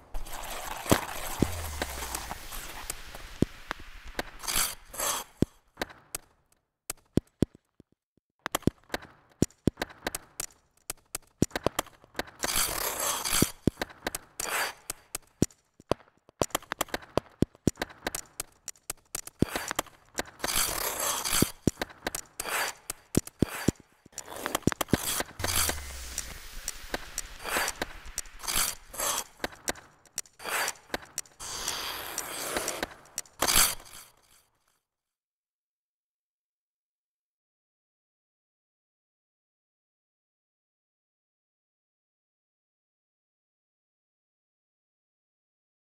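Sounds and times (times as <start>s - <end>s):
ice skate blades clicking and scraping: 0.0s - 7.6s, 8.5s - 34.4s.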